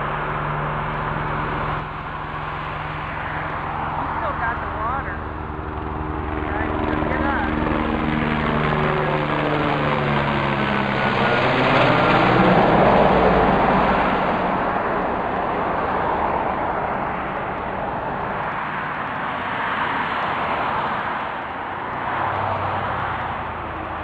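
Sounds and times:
helicopter passing overhead: 0.0s - 24.0s.

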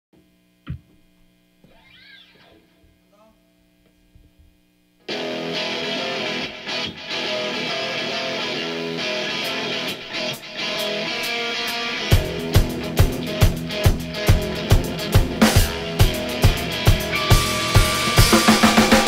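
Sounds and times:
amplifier hum: 0.2s - 7.0s
rock band playing: 5.1s - 19.0s
sliding guitar notes: 5.1s - 19.0s.

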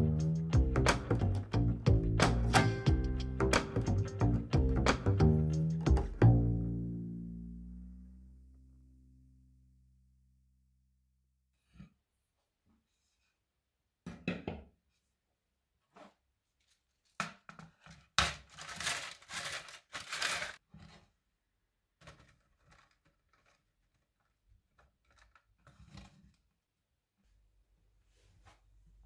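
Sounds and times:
peels rustling and scraping: 16.0s - 21.1s, 22.0s - 26.5s.

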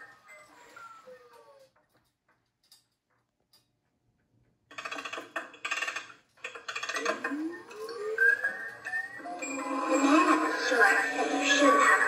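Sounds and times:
rising tones: 7.1s - 12.0s.

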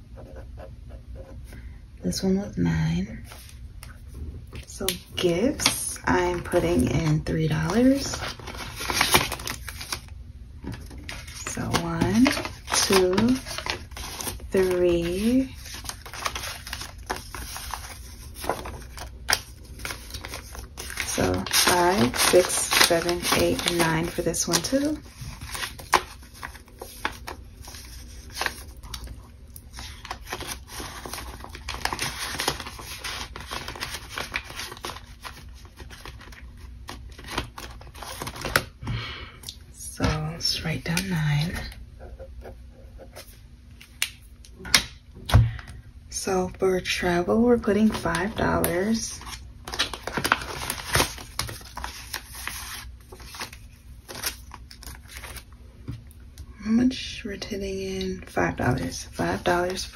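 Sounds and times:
banknotes and plastic rustling: 3.2s - 38.8s, 46.2s - 55.5s, 58.2s - 59.9s
plastic and paper crinkling: 3.3s - 38.8s, 47.0s - 56.1s, 58.2s - 59.9s.

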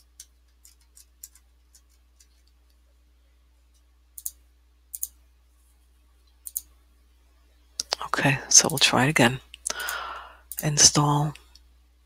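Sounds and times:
computer mouse clicking: 0.0s - 2.8s, 3.7s - 5.2s, 6.4s - 6.7s, 9.6s - 10.7s
faint steady hum: 0.0s - 12.0s.

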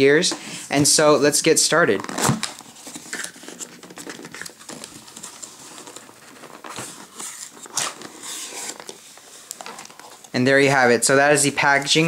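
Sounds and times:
cardboard box rustling and scraping: 2.0s - 10.3s.

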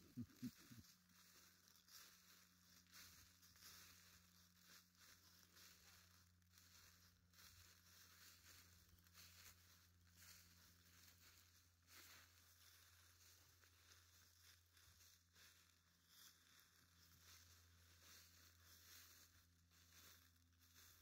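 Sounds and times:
footsteps through dry leaves: 0.0s - 21.0s.

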